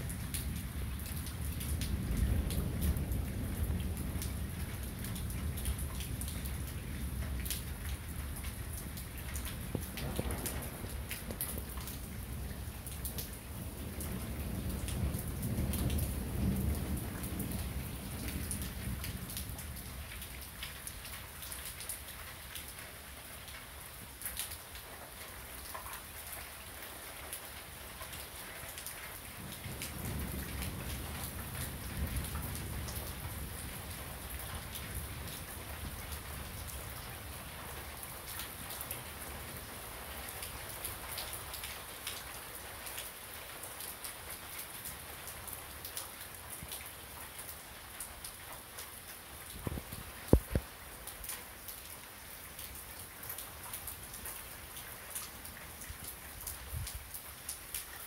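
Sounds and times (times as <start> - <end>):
rain falling: 0.0 - 58.0
raindrops ticking close by: 0.0 - 58.0
thunder rolling: 9.6 - 11.9.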